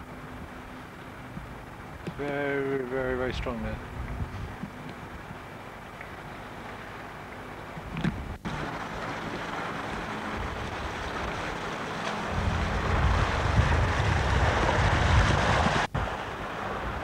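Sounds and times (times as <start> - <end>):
wind rumbling on microphone: 0.0 - 7.0, 7.6 - 17.0
bicycle splashing through floodwater: 5.0 - 17.0.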